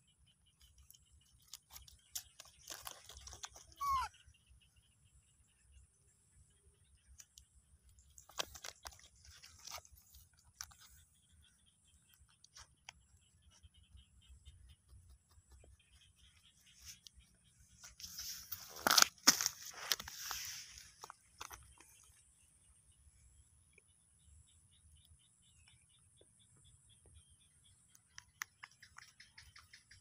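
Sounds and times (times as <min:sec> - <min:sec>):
monkey squeak: 0:02.7 - 0:04.2.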